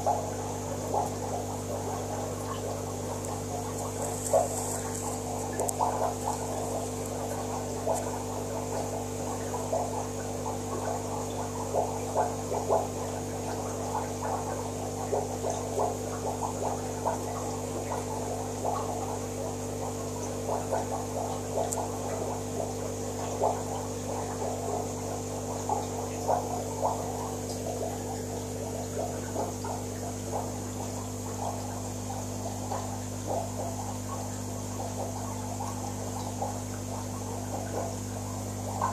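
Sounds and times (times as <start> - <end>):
aquarium filter gurgling: 0.0 - 38.9
pump electric hum: 0.0 - 38.9
small bubbling pops: 0.0 - 38.9.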